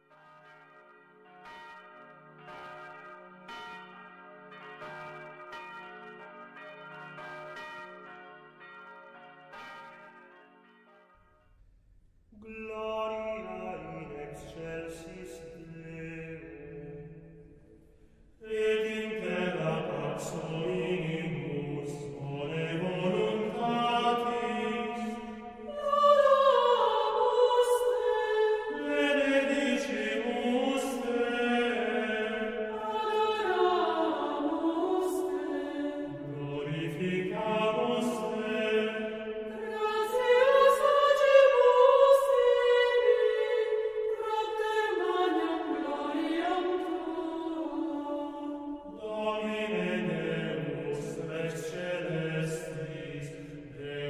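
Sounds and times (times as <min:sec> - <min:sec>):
church bells ringing: 0:00.0 - 0:11.5, 0:18.5 - 0:54.0
choir singing a chant: 0:18.4 - 0:54.0.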